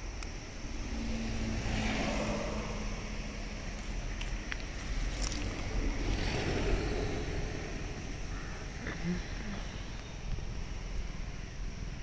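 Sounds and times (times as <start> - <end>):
low steady rumble: 0.0 - 12.0
vehicle engine passing: 0.6 - 8.8.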